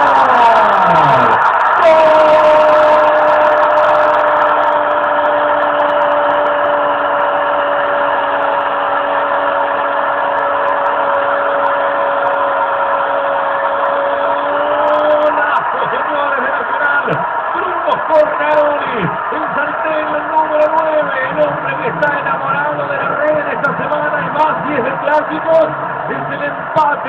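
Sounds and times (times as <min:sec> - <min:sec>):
commentator's drawn-out goal cry: 0:00.0 - 0:06.8
stadium crowd cheering: 0:00.0 - 0:27.0.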